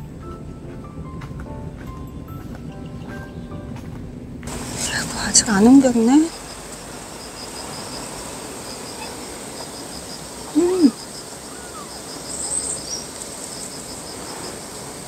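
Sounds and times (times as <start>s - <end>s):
loud low call: 10.5s - 11.0s
kittens mewing faintly: 10.5s - 12.0s.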